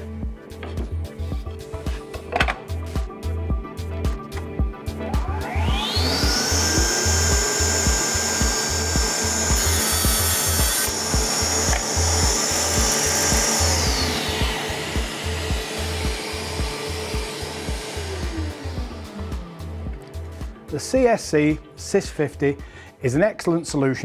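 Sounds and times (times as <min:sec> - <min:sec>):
background music with beat: 0:00.0 - 0:23.9
table saw motor whine: 0:04.9 - 0:20.4
saw blade cutting wood: 0:05.4 - 0:19.5.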